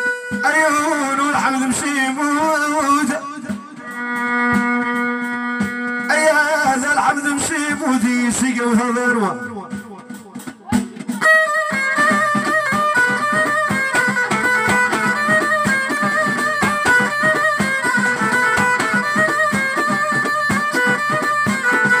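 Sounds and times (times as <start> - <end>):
frame drums: 0.0 - 22.0
drum kit fast rhythm: 6.8 - 22.0
bowed string melody: 11.1 - 22.0.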